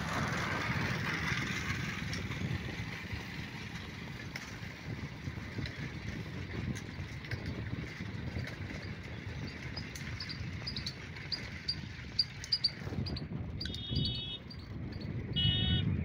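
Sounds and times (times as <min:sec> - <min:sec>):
wind rumble on microphone: 0:00.0 - 0:16.0
brief buzzy tone: 0:15.4 - 0:15.9.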